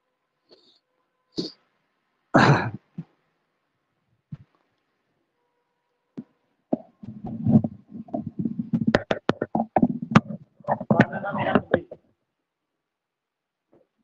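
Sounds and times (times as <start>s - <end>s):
handling noise clicks and knocks: 6.8s - 12.0s.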